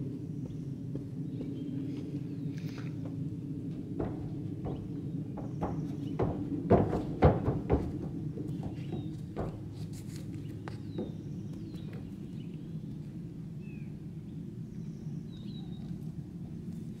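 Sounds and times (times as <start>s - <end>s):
low outdoor rumble: 0.0s - 17.0s
horse hooves on trailer floor: 3.7s - 12.6s
small birds chirping: 4.0s - 7.6s, 8.2s - 16.2s.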